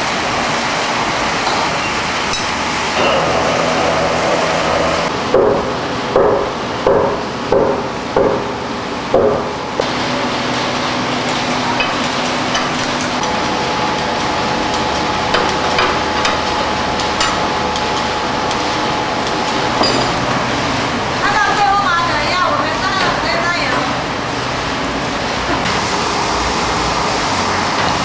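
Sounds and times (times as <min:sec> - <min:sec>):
machine hum: 0:00.0 - 0:28.0
sharp ringing machine knocks: 0:19.8 - 0:20.2.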